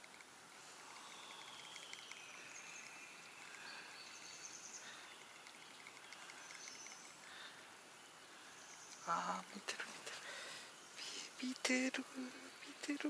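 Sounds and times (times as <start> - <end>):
faint even hiss: 0.0 - 13.0
faint high-pitched chirps: 0.7 - 9.9.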